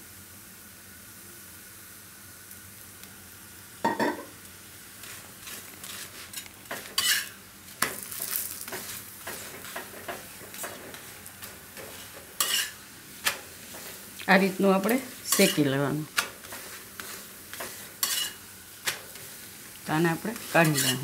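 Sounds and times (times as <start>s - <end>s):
oil sizzling on hot pan: 0.0s - 21.0s
steel spatula scraping pan: 5.0s - 14.1s, 14.8s - 19.4s, 20.1s - 21.0s.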